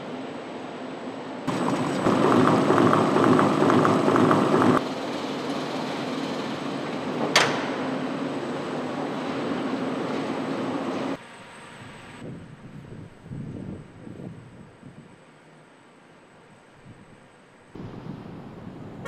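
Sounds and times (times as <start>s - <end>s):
machinery hum: 0.0s - 19.0s
machinery clattering: 1.5s - 6.3s.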